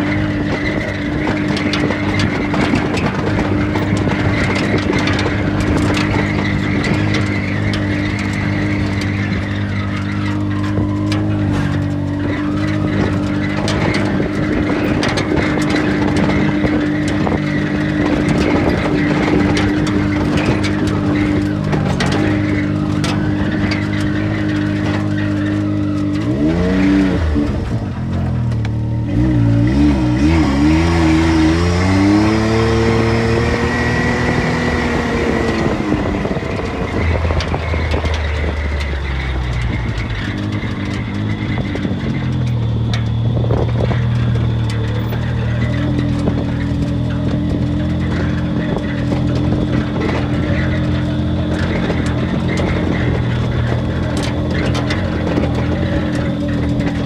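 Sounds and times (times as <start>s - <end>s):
knocks and rattles: 0.0s - 57.0s
off-road vehicle engine running: 0.0s - 57.0s.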